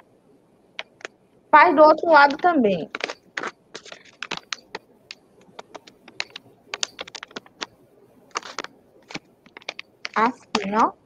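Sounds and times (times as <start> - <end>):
paper being folded and creased: 8.3 - 10.7.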